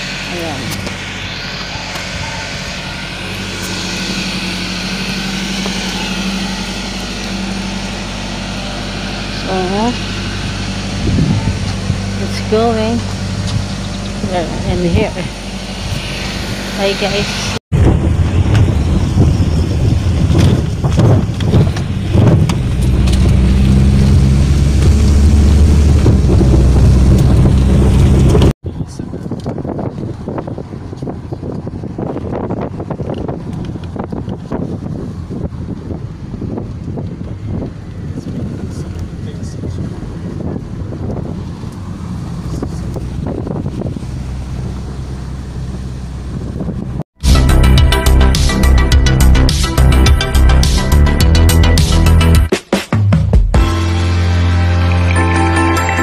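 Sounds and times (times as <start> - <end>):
small motorcycle engine running: 0.0 - 34.8
wind on microphone: 0.0 - 48.4.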